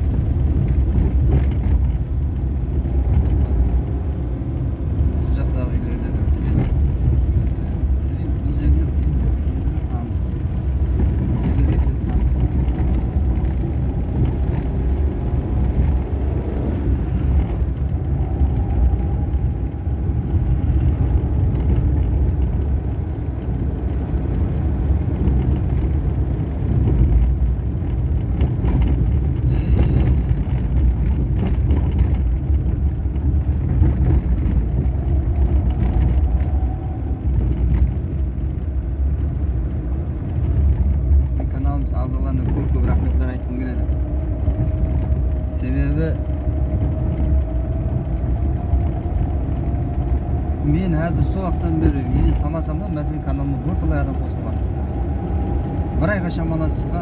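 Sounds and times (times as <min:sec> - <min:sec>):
tyre and engine rumble in car: 0:00.0 - 0:57.0.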